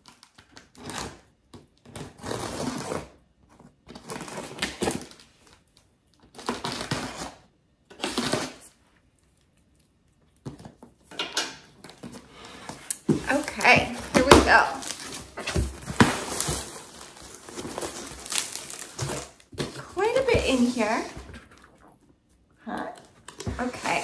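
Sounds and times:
cardboard box tape tearing: 0:00.0 - 0:03.2, 0:06.3 - 0:08.8, 0:12.9 - 0:21.6.

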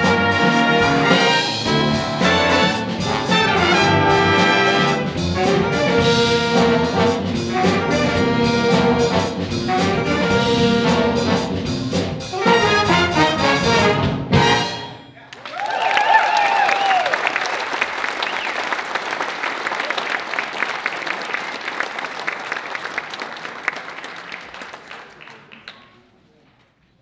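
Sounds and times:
audience applause and cheering: 0:15.2 - 0:25.9
person whooping: 0:15.5 - 0:17.2.

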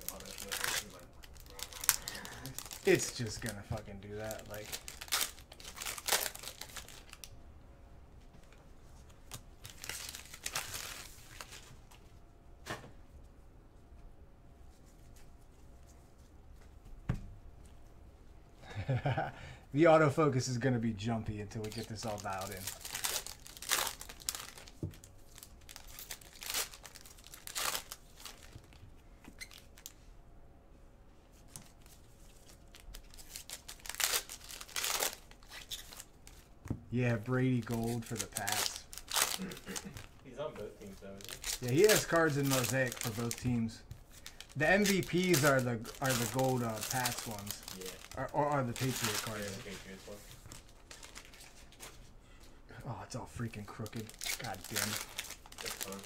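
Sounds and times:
wrapper ripping: 0:00.0 - 0:07.3, 0:09.2 - 0:11.7, 0:21.6 - 0:28.8, 0:31.8 - 0:36.5, 0:37.1 - 0:40.2, 0:40.8 - 0:51.7, 0:53.7 - 0:56.0
wrappers crinkling: 0:00.0 - 0:07.3, 0:09.2 - 0:12.0, 0:21.5 - 0:30.0, 0:31.6 - 0:52.0, 0:53.5 - 0:56.0.

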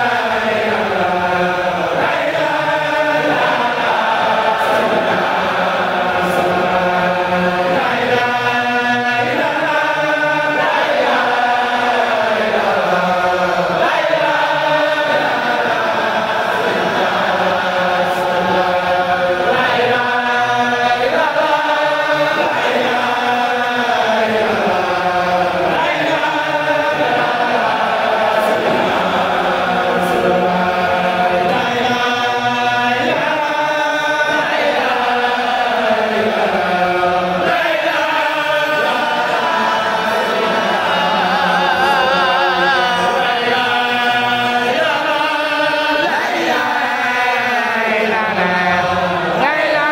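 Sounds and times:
men and boys chanting: 0:00.0 - 0:49.9.

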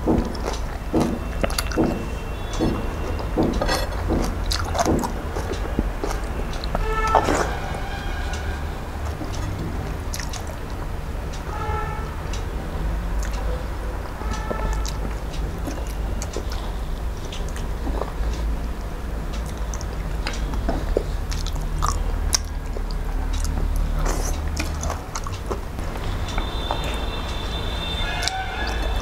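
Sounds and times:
close chewing with mouth smacks: 0:00.0 - 0:07.5, 0:09.1 - 0:10.8, 0:13.2 - 0:13.4, 0:14.3 - 0:18.6, 0:19.2 - 0:27.6.

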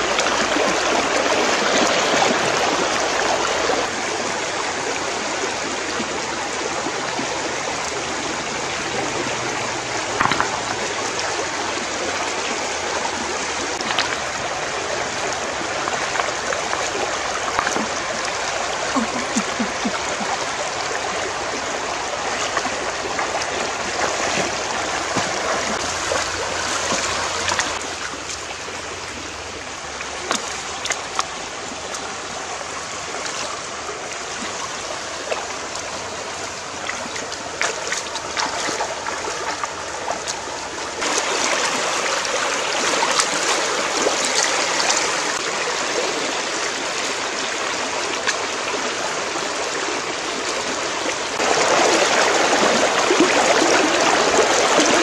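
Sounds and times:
stream running over rocks: 0:00.0 - 0:55.0
short water splashes: 0:09.0 - 0:28.5, 0:33.1 - 0:45.5.

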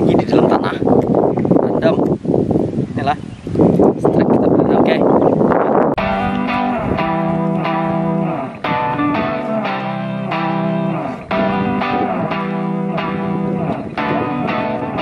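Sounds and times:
instrumental background music: 0:06.0 - 0:15.0.

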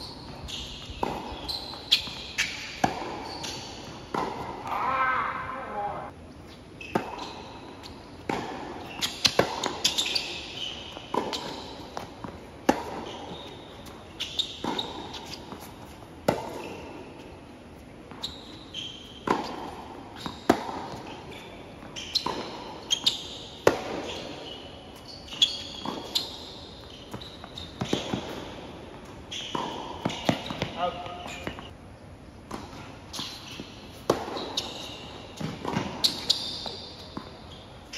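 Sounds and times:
sneakers squeaking on court: 0:00.0 - 0:31.8, 0:32.4 - 0:37.9
tennis racket striking ball: 0:01.0 - 0:04.8, 0:08.2 - 0:10.4, 0:11.1 - 0:13.1, 0:19.2 - 0:19.9.

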